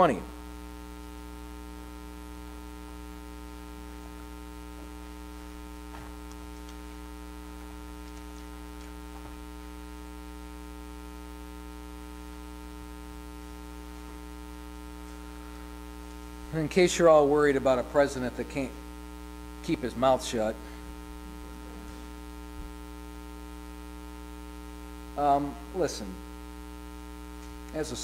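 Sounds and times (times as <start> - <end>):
electrical mains hum: 0.0 - 28.0
pages being turned: 8.0 - 9.3.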